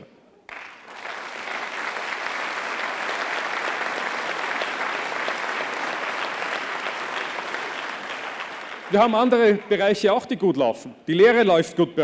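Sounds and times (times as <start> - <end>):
audience applauding: 0.5 - 10.0.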